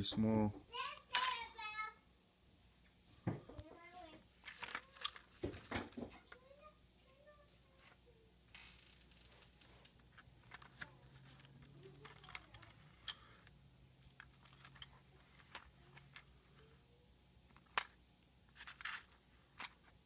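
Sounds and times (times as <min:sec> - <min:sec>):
small metal parts shifting: 0:10.4 - 0:13.5, 0:14.1 - 0:16.3, 0:18.6 - 0:19.8
paper rustling: 0:18.5 - 0:20.0.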